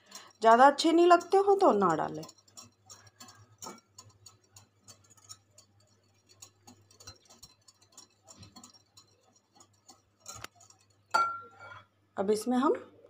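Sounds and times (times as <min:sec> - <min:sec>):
whisk ticking against glass bowl: 0:00.0 - 0:11.6.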